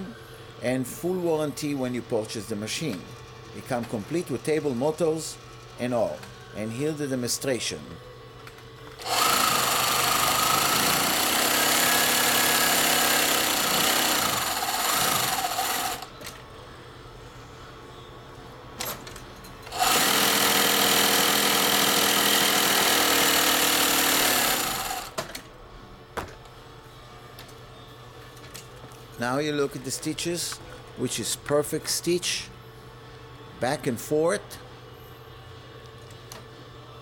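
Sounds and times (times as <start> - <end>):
sewing machine stitching: 9.0 - 16.1, 19.7 - 25.2.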